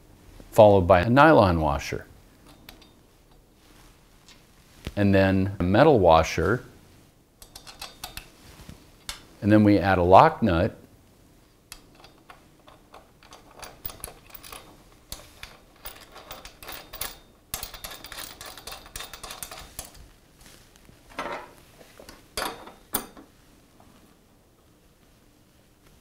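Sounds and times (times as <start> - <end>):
nut rattling on threaded rod: 11.7 - 20.0.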